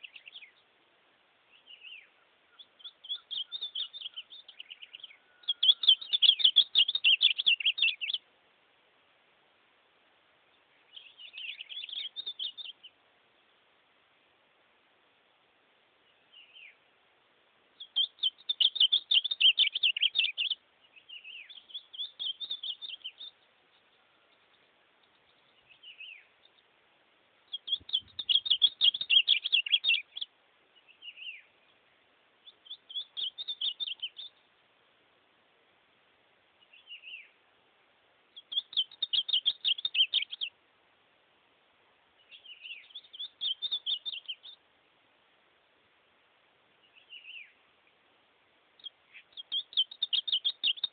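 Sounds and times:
bird singing warbled phrases: 0:00.0 - 0:00.8, 0:01.5 - 0:08.3, 0:10.5 - 0:13.0, 0:16.0 - 0:16.8, 0:17.8 - 0:26.7, 0:27.5 - 0:34.5, 0:36.6 - 0:37.4, 0:38.3 - 0:40.6, 0:42.2 - 0:44.7, 0:46.8 - 0:48.0, 0:48.8 - 0:50.9.

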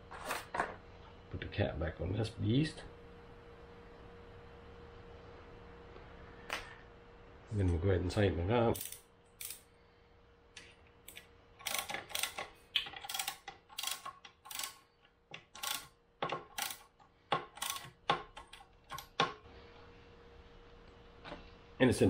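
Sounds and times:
hand ratchet clicking: 0:08.8 - 0:09.6, 0:11.1 - 0:19.2.

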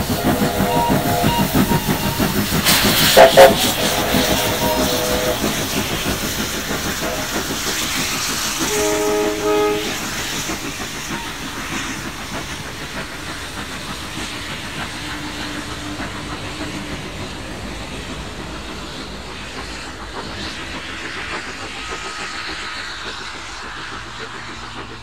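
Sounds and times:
train whistle blast: 0:00.0 - 0:05.8, 0:07.0 - 0:07.4, 0:08.6 - 0:10.2
steam locomotive exhaust: 0:00.0 - 0:25.0
wheels clicking on rail joints: 0:00.0 - 0:25.0.

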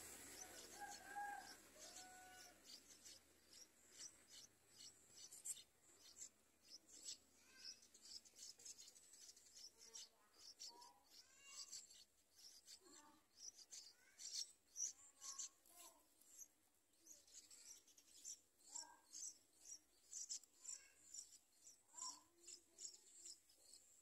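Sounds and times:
nestlings chirping: 0:00.0 - 0:24.0.

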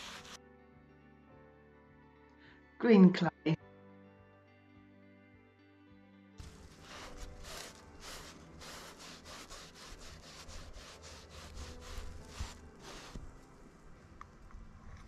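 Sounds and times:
sponge scrubbing on board: 0:00.0 - 0:00.4, 0:06.4 - 0:13.3.

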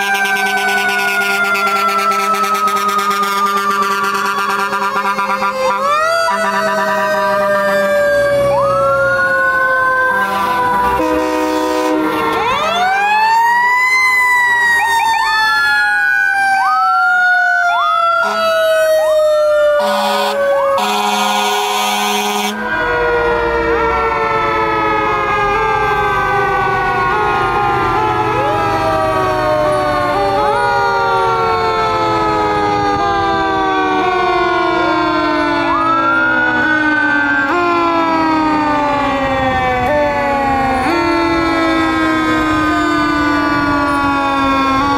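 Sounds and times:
loud horn blast: 0:00.0 - 0:06.6, 0:10.1 - 0:12.7, 0:18.2 - 0:18.9, 0:19.8 - 0:25.4
sirens sweeping and wailing: 0:00.0 - 0:44.9.

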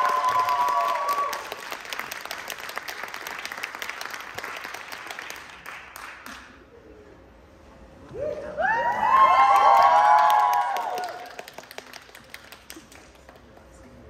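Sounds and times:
people cheering: 0:00.0 - 0:02.0, 0:08.1 - 0:11.6
audience applauding: 0:00.0 - 0:06.6, 0:08.8 - 0:14.0.

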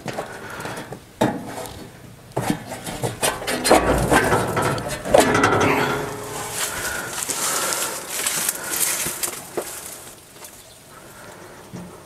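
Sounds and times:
metal panel clanking: 0:01.2 - 0:07.2
metal panel rattling and scraping: 0:01.2 - 0:08.4.

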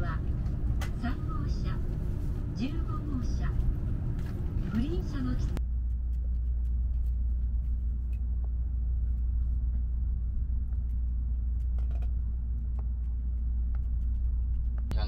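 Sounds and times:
train cabin low rumble: 0:00.0 - 0:05.6.

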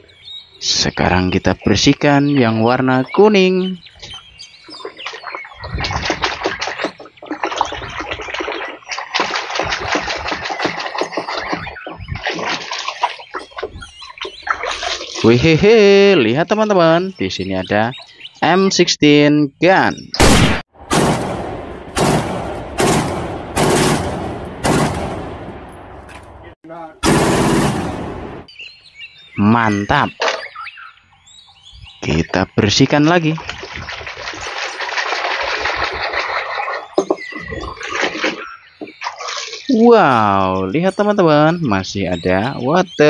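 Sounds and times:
water splashing and sloshing: 0:03.9 - 0:15.7, 0:32.9 - 0:40.2
gunshots with long echo: 0:20.2 - 0:28.5.

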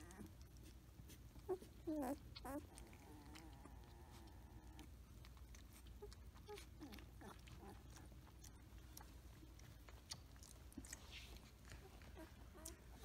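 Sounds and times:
puppies rustling on a towel: 0:00.0 - 0:13.0
puppies squeaking: 0:01.4 - 0:03.8, 0:05.7 - 0:13.0.

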